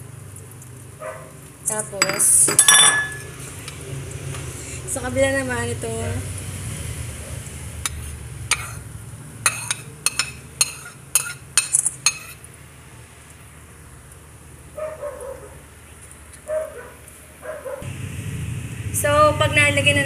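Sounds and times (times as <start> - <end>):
metal spoon clinking on a plate: 2.0 - 3.4, 9.5 - 12.4
low steady hum: 17.8 - 20.0.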